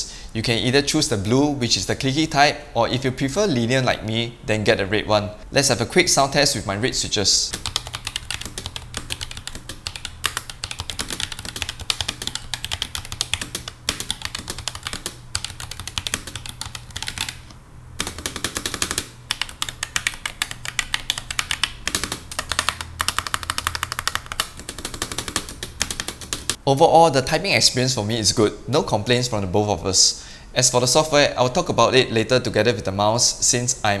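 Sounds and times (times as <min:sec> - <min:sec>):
mechanical keyboard key clacks: 0:18.0 - 0:26.6.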